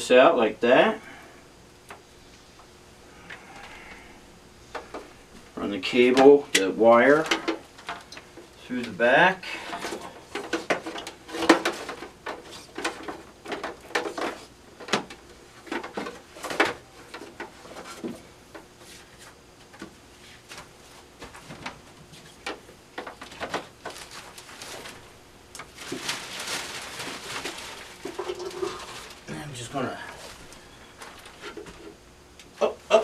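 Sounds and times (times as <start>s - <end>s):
clicks and knocks of machine parts: 6.1s - 8.3s
rustling: 9.6s - 32.0s.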